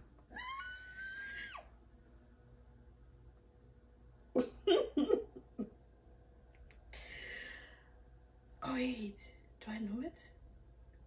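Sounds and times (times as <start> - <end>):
woman squealing: 0.3 - 1.8.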